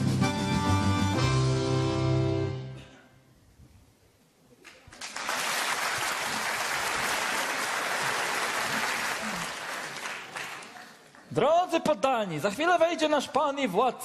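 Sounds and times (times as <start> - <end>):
audience applauding: 4.6 - 11.3.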